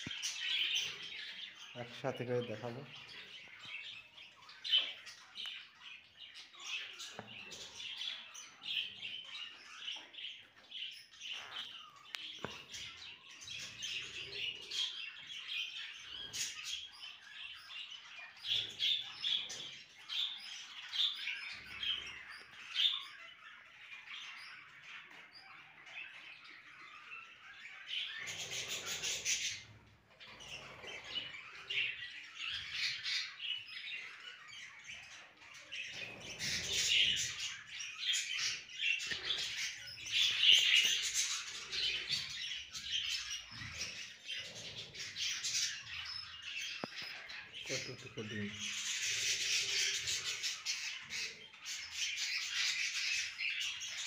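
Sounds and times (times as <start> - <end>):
budgerigars chattering and chirping: 0.0 - 54.0.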